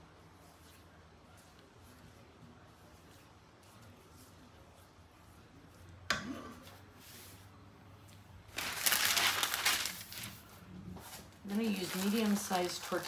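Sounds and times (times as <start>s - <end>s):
paper crinkling: 8.5s - 13.0s.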